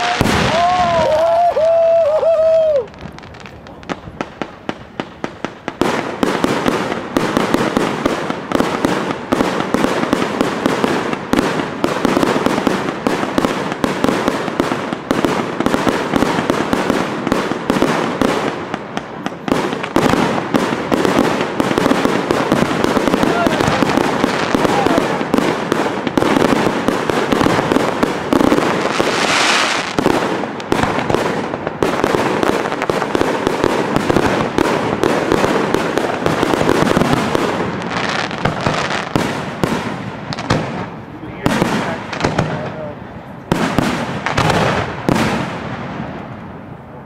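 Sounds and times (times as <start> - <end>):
fireworks crackling and popping: 0.0 - 47.0
firework whistles: 28.8 - 30.0.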